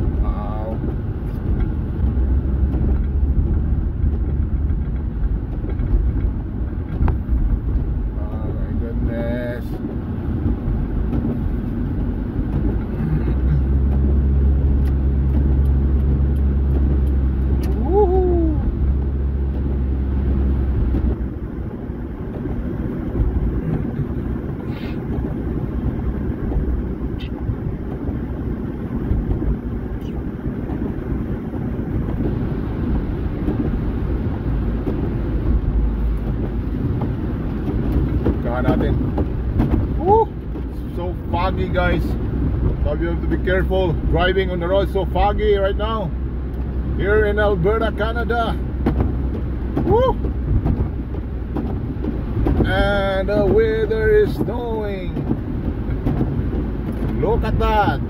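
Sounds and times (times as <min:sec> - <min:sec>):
car road noise rumble: 0:00.0 - 0:58.0
deep steady hum: 0:00.0 - 0:58.0.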